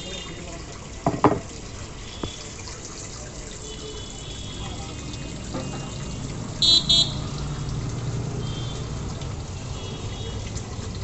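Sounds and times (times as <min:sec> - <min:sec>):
busy background noise: 0:00.0 - 0:11.0
vehicle horn toots: 0:05.6 - 0:07.3, 0:08.4 - 0:08.9.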